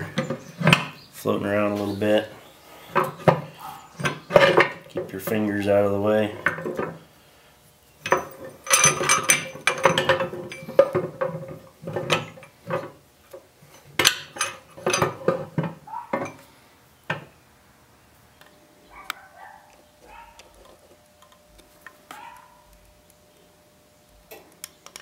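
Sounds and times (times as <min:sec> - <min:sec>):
steel gears clanking: 0:08.0 - 0:10.9.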